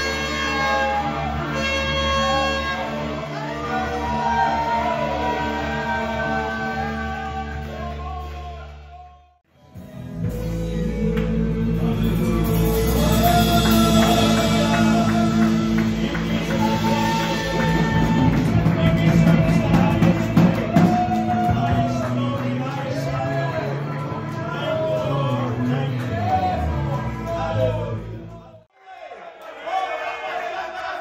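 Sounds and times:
live worship band music: 0:00.0 - 0:09.0, 0:09.6 - 0:28.5
person singing: 0:09.5 - 0:28.1
electric guitar: 0:09.7 - 0:27.7.

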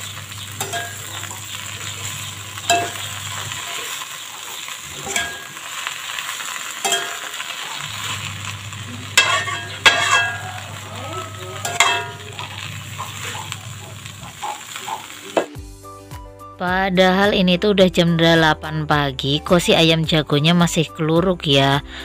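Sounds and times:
vegetables sizzling in a wok: 0:00.0 - 0:15.8
metal spatula scraping pan: 0:04.9 - 0:05.8, 0:06.5 - 0:15.5.

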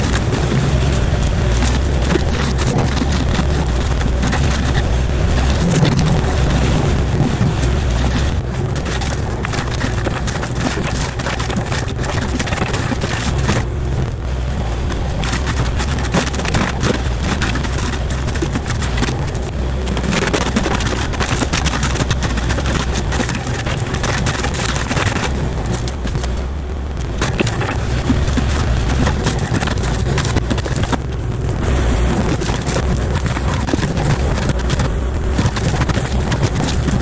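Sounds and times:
excavator diesel engine running: 0:00.0 - 0:37.0
mulcher grinding through brush: 0:00.0 - 0:37.0.

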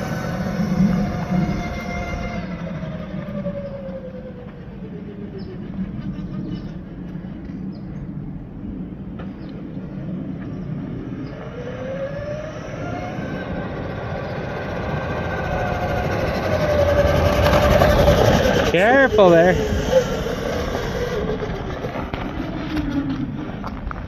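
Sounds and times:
electric motor whine: 0:00.0 - 0:05.7, 0:11.0 - 0:23.7
steady low hum: 0:00.0 - 0:24.0.

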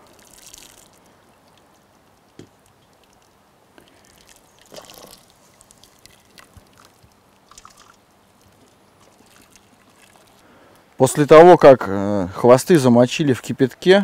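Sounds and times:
water trickling into a pot: 0:00.0 - 0:11.1.

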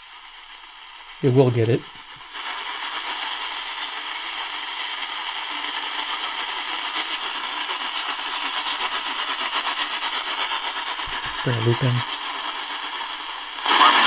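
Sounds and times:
radio static and hiss: 0:00.0 - 0:14.0
weak distant radio station: 0:01.2 - 0:02.2, 0:07.1 - 0:12.1.

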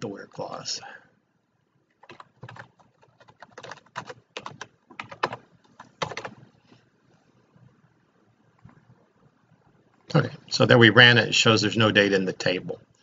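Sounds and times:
computer keyboard typing: 0:02.0 - 0:06.4.

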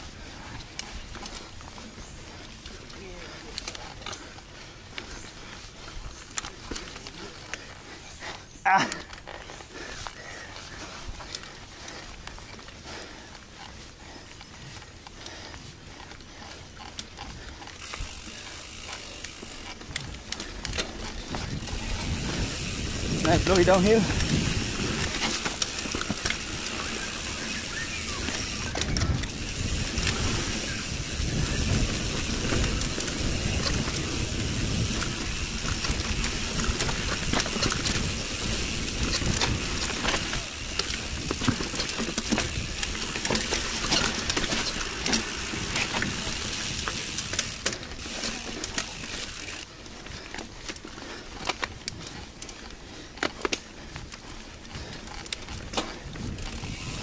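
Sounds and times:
bike chain rattling and clicking: 0:00.0 - 0:57.0
bike tyres on dirt: 0:00.0 - 0:57.0
wind rush on microphone: 0:19.8 - 0:25.2, 0:28.2 - 0:41.6, 0:54.8 - 0:57.0.

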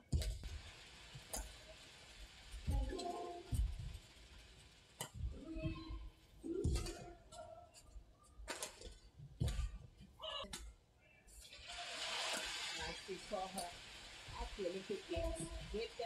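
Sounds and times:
rackets hitting shuttlecock: 0:06.5 - 0:07.2.

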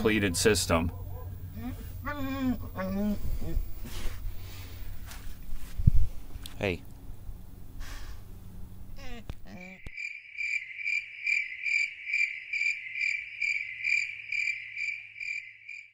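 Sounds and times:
outdoor background noise: 0:00.0 - 0:15.9
cricket chirping: 0:09.6 - 0:15.9.

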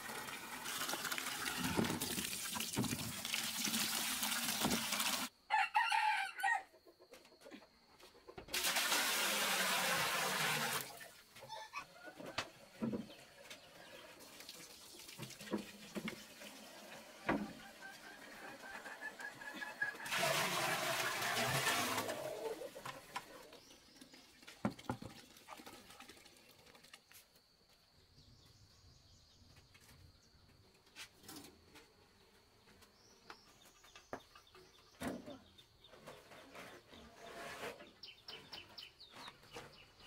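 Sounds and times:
water gushing into metal pot: 0:00.0 - 0:05.3, 0:08.5 - 0:11.0, 0:19.9 - 0:23.2.

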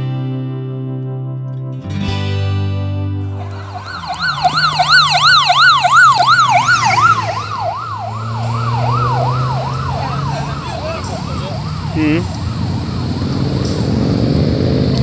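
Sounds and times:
low engine hum: 0:03.3 - 0:15.0
police siren yelping: 0:03.4 - 0:13.4.

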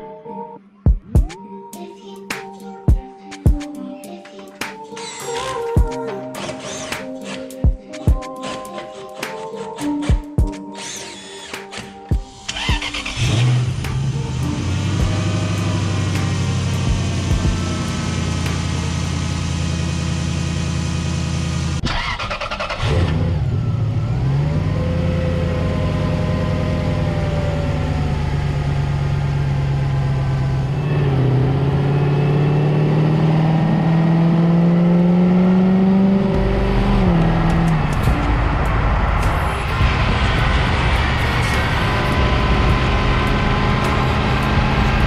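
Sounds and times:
car engine revving: 0:12.4 - 0:45.0.

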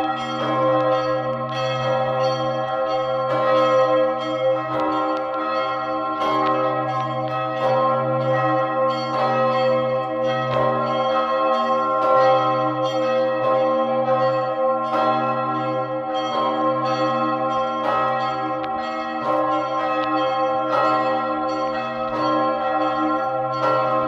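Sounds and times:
church bell ringing: 0:00.0 - 0:24.0.

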